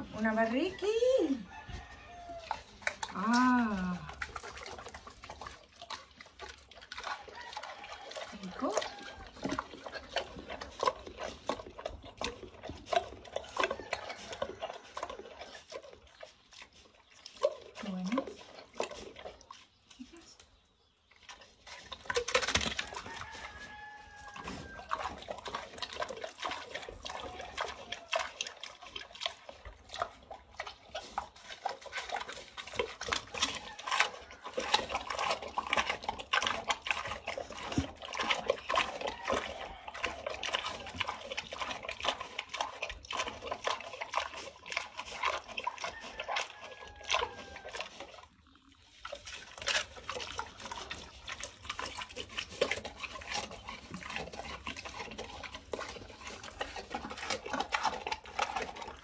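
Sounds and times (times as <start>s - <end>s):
pig chewing watermelon: 0.0s - 59.0s.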